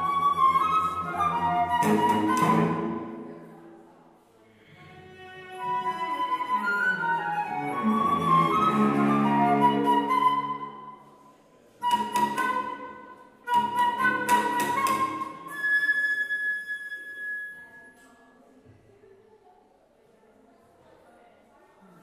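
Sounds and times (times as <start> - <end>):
flute: 0.0 - 3.4, 5.4 - 11.2, 11.8 - 18.1
cello: 0.0 - 3.7, 4.6 - 11.0, 11.8 - 17.2.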